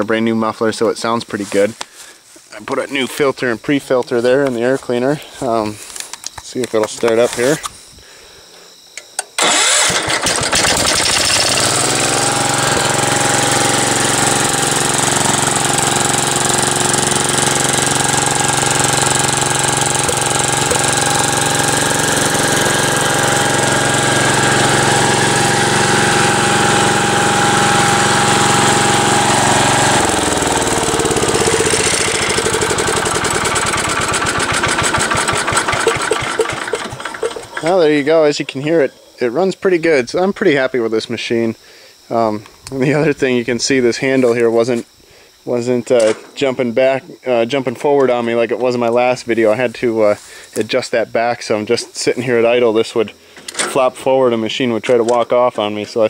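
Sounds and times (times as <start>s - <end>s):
tractor engine running: 9.4s - 38.6s.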